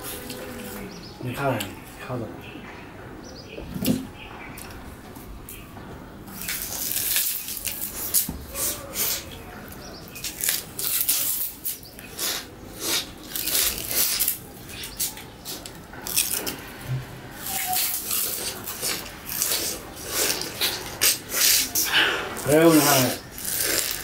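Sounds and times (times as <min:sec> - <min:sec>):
people chewing raw sugarcane: 0:00.0 - 0:02.0, 0:06.2 - 0:24.0
crisp crunches and fiber tearing: 0:06.4 - 0:08.3, 0:10.1 - 0:11.9, 0:12.9 - 0:16.6, 0:22.4 - 0:24.0.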